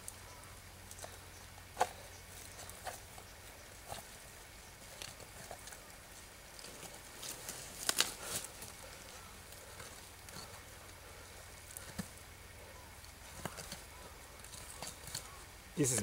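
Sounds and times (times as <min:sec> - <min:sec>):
knife cutting carcass crackling: 0:13.1 - 0:15.4.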